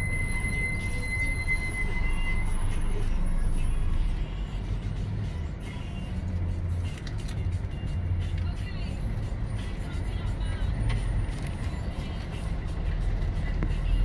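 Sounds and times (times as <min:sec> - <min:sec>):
thin high whine: 0:00.0 - 0:03.1
car engine and road noise: 0:00.0 - 0:14.0.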